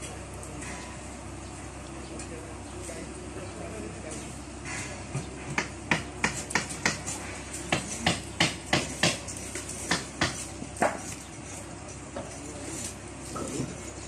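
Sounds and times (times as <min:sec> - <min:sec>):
sharp knocks: 0:04.8 - 0:07.1, 0:07.7 - 0:09.3.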